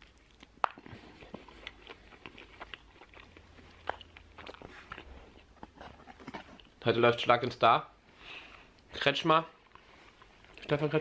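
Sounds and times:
person chewing food: 0:00.0 - 0:07.2, 0:09.5 - 0:11.0
faint low hum: 0:00.0 - 0:11.0.

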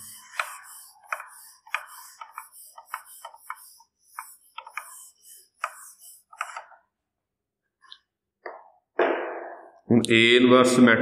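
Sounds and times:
duster rubbing on whiteboard: 0:00.0 - 0:06.9.

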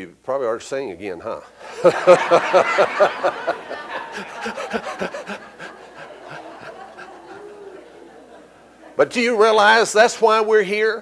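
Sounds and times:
man laughing heartily: 0:01.6 - 0:09.0
room laughing: 0:01.6 - 0:09.1.

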